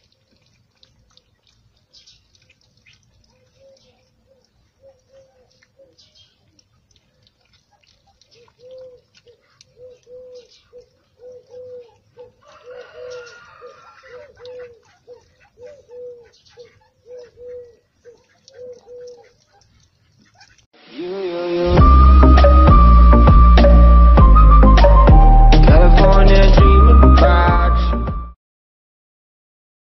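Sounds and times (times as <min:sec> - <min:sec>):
puppies eating from metal bowl: 0:00.0 - 0:13.2
soft cooing calls: 0:02.9 - 0:06.4, 0:08.2 - 0:19.7.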